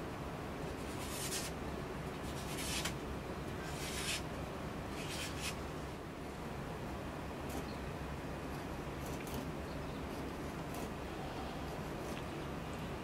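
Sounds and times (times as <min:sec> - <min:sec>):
blade slicing through paper: 0:00.9 - 0:01.6, 0:02.2 - 0:03.0, 0:03.7 - 0:04.2, 0:04.9 - 0:05.6.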